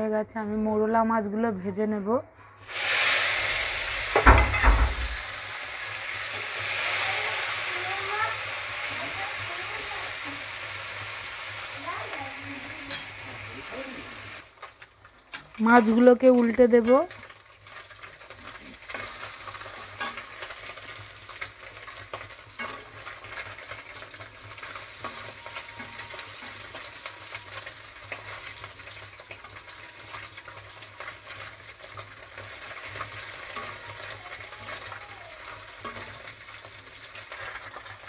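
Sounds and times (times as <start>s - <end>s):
fish sizzling in hot oil: 2.6s - 38.0s
metal spatula scraping a pan: 12.6s - 13.3s, 17.2s - 28.7s, 35.8s - 36.5s.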